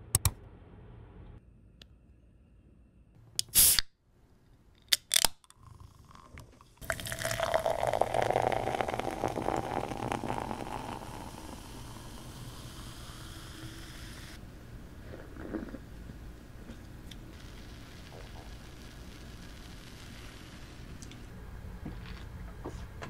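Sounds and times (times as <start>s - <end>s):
can cracked open with pop and hiss: 3.4s - 3.9s
beer pouring and fizzing: 5.5s - 14.4s, 15.0s - 16.1s.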